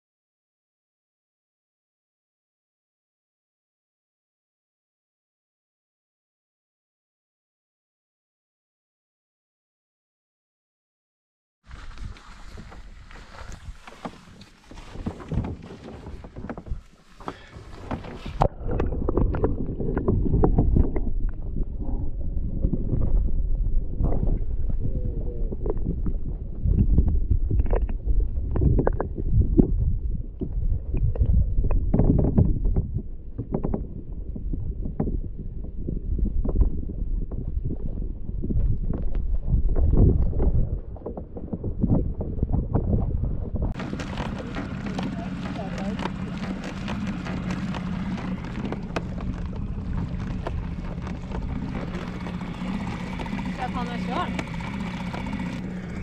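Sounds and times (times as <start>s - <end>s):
outboard motor running: 11.7s - 26.6s, 43.7s - 56.0s
underwater water rushing: 11.7s - 32.7s, 36.8s - 56.0s
wind noise on microphone: 11.7s - 56.0s
knocks and clicks on hull: 11.9s - 22.0s, 25.6s - 29.8s, 30.4s - 37.9s, 38.5s - 56.0s.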